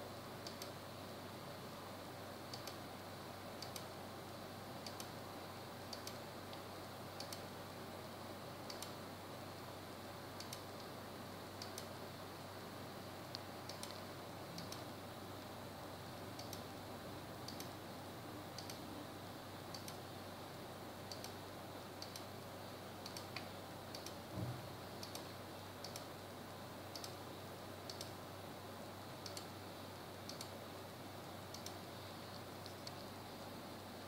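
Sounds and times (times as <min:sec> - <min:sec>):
computer mouse clicking: 0:00.4 - 0:00.8, 0:02.5 - 0:02.8, 0:03.6 - 0:03.9, 0:04.8 - 0:05.2, 0:05.9 - 0:06.6, 0:07.2 - 0:07.5, 0:08.6 - 0:09.0, 0:10.4 - 0:10.9, 0:11.6 - 0:12.0, 0:13.3 - 0:14.8, 0:16.4 - 0:16.7, 0:17.4 - 0:17.8, 0:18.6 - 0:18.8, 0:19.7 - 0:20.0, 0:21.1 - 0:21.4, 0:22.0 - 0:22.3, 0:23.0 - 0:24.2, 0:25.0 - 0:26.1, 0:26.9 - 0:27.2, 0:27.9 - 0:28.2, 0:29.2 - 0:29.5, 0:30.3 - 0:30.6, 0:31.5 - 0:33.1.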